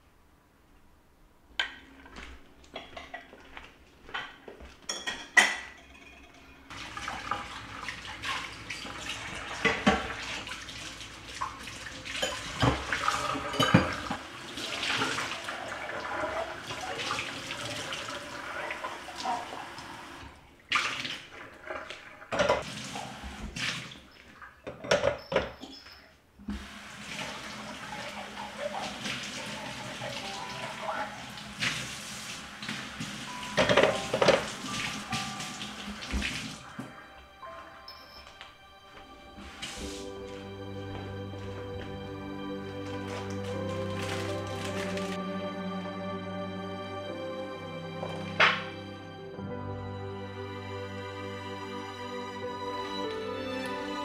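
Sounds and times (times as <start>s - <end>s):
glasses clinking and knocking: 4.9s - 6.7s, 13.5s - 14.1s, 24.7s - 26.0s, 33.6s - 34.4s
tap running into metal sink: 8.2s - 10.4s, 33.6s - 36.4s.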